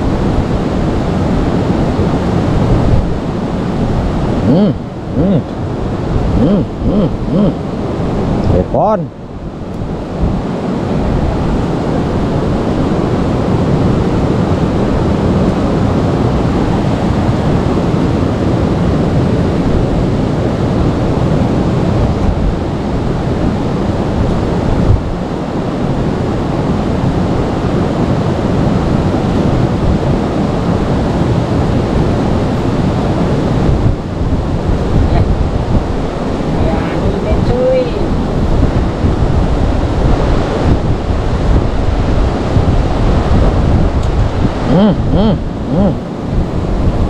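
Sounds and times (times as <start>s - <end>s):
river water rushing: 0.0s - 47.0s
wind on microphone: 0.0s - 47.0s.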